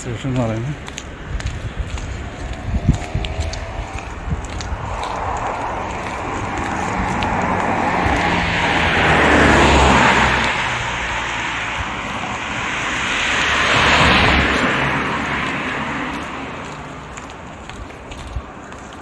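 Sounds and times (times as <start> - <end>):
tyre and air noise: 0.5 - 19.0
low engine hum: 0.8 - 18.9.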